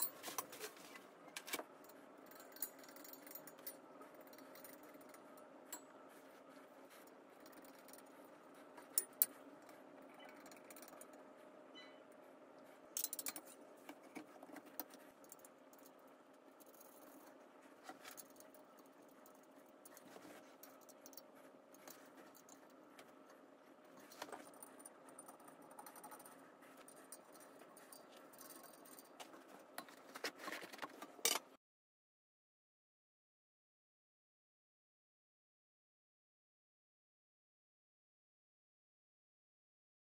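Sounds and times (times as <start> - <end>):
metal tubes and screws clinking: 0.0 - 5.9, 13.0 - 16.0, 24.0 - 31.5.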